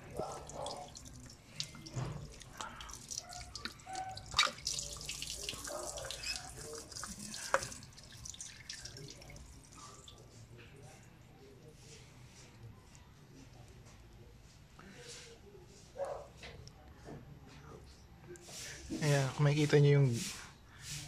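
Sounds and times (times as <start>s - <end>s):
coolant dripping and trickling: 0.0s - 11.1s.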